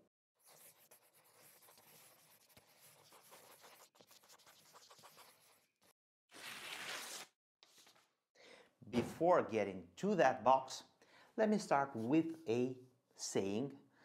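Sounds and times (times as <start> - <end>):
pen nib scratching paper: 0.4 - 5.9.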